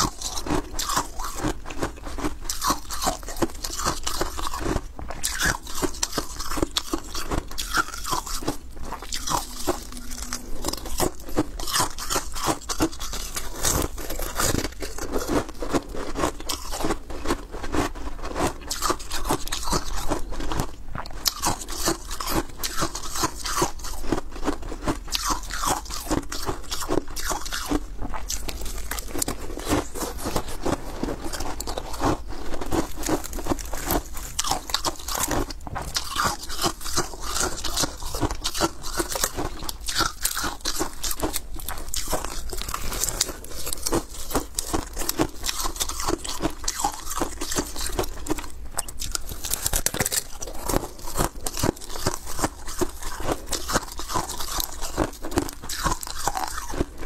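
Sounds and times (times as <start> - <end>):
ice cracking and crunching: 49.0 - 56.8.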